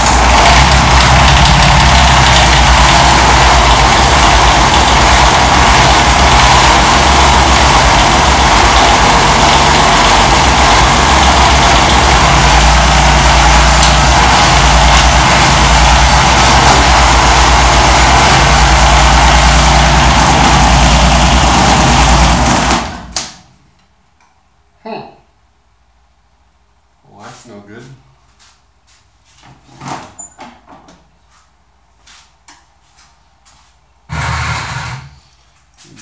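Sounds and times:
diesel engine running: 0.0s - 23.4s.

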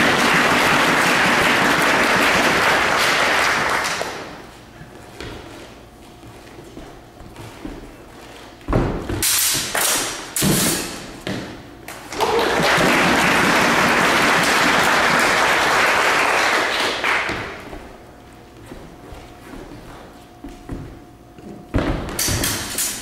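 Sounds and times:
audience applauding: 0.0s - 4.2s, 12.1s - 17.3s
sabres knocking and clashing: 9.2s - 11.1s, 22.2s - 23.0s.

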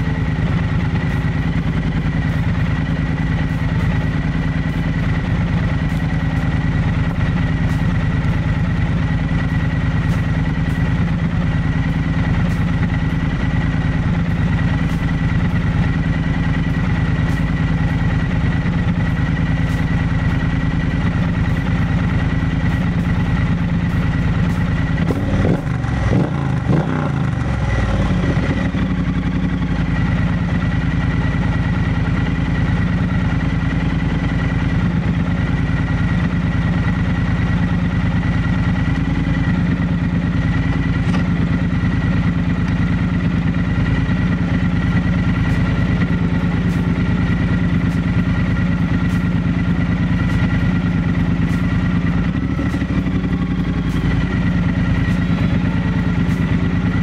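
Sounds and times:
motorcycle engine idling: 0.0s - 57.0s
motorcycle engine throttle blips: 33.8s - 57.0s.

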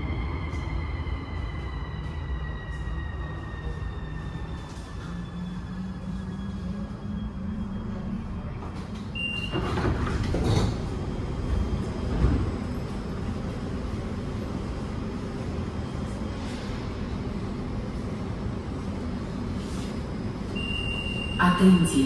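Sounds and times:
train low hum: 0.0s - 22.0s.

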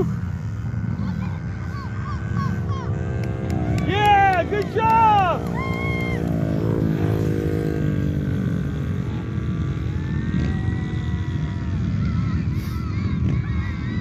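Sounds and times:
motorcycle engines revving: 0.0s - 14.0s
steady low rumble: 0.0s - 14.0s.

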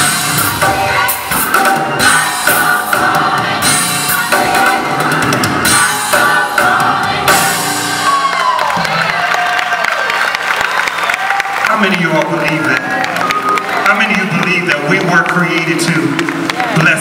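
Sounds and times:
drum kit and cymbals beat: 0.0s - 8.2s
gospel choir singing: 0.0s - 8.7s
live band: 0.0s - 9.6s.

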